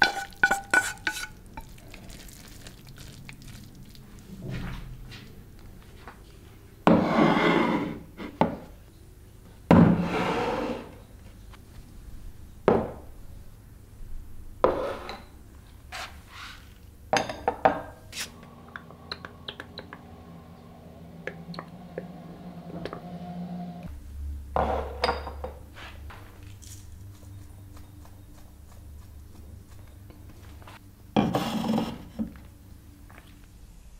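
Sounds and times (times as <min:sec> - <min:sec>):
ceramic plates set on a table: 0:06.8 - 0:08.7, 0:09.7 - 0:11.0, 0:14.6 - 0:15.4, 0:16.3 - 0:18.0, 0:24.6 - 0:25.9.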